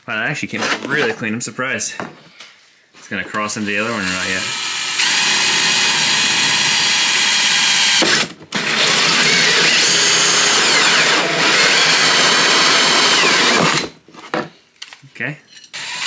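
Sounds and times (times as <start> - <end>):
drill cutting plastic whine: 3.6 - 14.0, 15.8 - 16.0.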